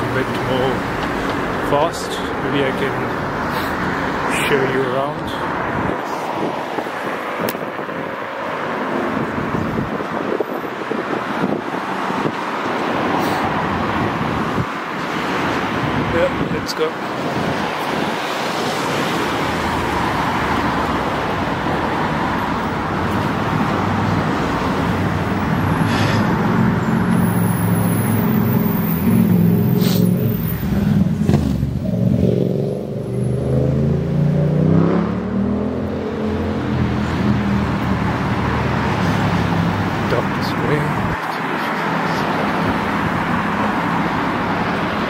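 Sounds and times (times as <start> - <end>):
road traffic passing: 0.0 - 45.0
vehicle engine accelerating: 25.3 - 40.0.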